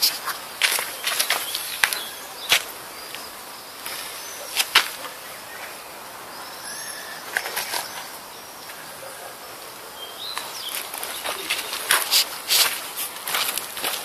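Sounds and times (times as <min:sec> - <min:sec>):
footsteps on gravel: 0:00.0 - 0:05.2, 0:10.2 - 0:14.0
small birds chirping: 0:00.0 - 0:14.0.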